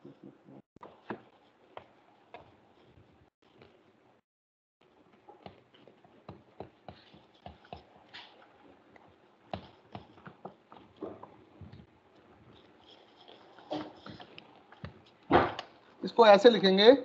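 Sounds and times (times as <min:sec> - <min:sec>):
cloth wiping a whiteboard: 0:05.0 - 0:15.1.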